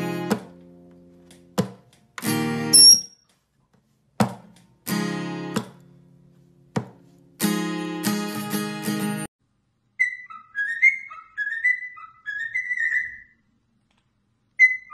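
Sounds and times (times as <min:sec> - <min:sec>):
acoustic guitar strumming chords: 0:00.0 - 0:03.0, 0:04.8 - 0:09.3.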